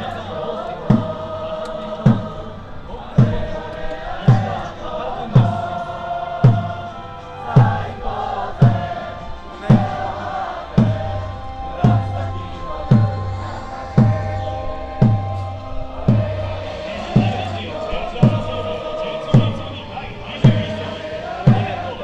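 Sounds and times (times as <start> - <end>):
football supporters chanting: 0.0 - 22.0
bass drum beats: 2.0 - 2.4, 3.2 - 3.6, 4.2 - 5.8, 6.4 - 6.9, 7.5 - 22.0.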